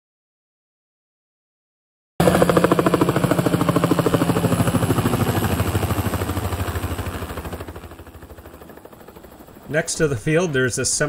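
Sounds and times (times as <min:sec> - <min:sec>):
helicopter engine: 0:02.2 - 0:11.0
helicopter rotor chopping: 0:02.2 - 0:11.0.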